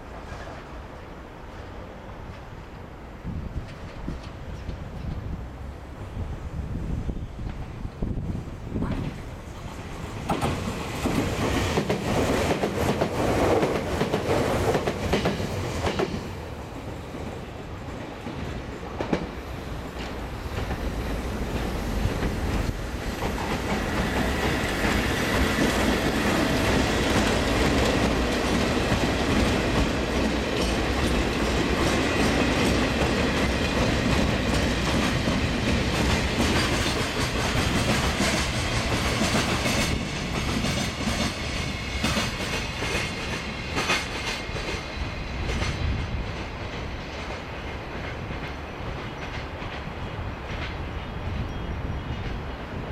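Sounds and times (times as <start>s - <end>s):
train wheels rumbling on rail: 0.0s - 52.9s.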